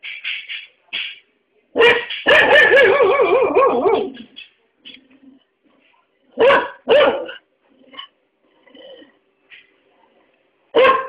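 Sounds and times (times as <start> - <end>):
dog barking: 1.8 - 4.3, 6.4 - 7.4, 10.7 - 11.0.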